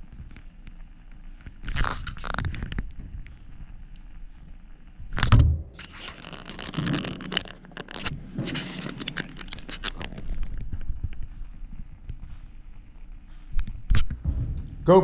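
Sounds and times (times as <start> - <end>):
rustling and scraping: 1.5 - 3.8, 5.1 - 15.0
thump near microphone: 5.2 - 5.7, 14.1 - 14.9.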